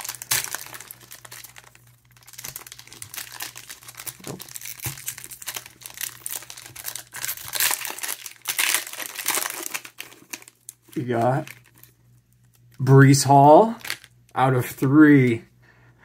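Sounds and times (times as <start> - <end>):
foil pack tearing: 0.0 - 11.9
foil pack crinkling: 0.0 - 12.8, 13.5 - 14.3.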